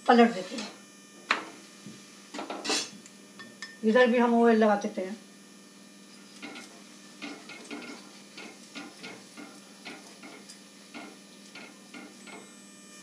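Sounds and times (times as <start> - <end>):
spoon tapping and scraping: 2.4 - 3.8, 6.2 - 12.5.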